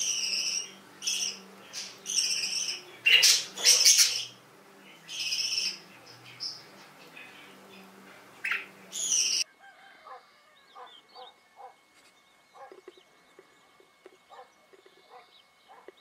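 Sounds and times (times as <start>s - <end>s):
budgerigar chirping: 0.0s - 4.4s, 5.1s - 6.6s
outdoor birdsong: 0.0s - 16.0s.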